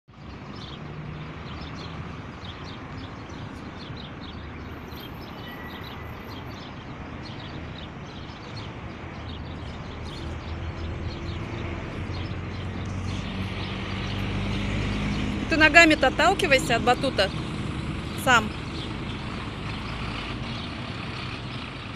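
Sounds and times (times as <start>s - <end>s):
small birds chirping: 0.1s - 21.9s
low traffic rumble: 0.2s - 21.9s.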